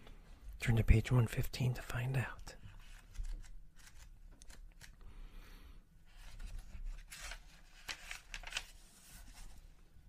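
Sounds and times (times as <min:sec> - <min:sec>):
book pages flipping: 0:02.6 - 0:05.0, 0:06.1 - 0:09.8.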